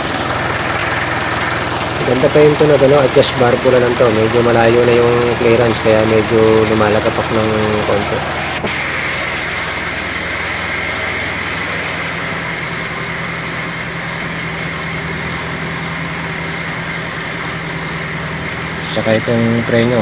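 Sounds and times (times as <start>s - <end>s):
diesel engine idling with clatter: 0.0s - 20.0s.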